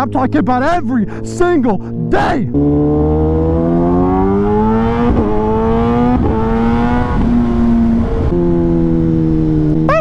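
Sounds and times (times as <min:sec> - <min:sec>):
motorcycle engine revving through gears: 0:02.5 - 0:09.9.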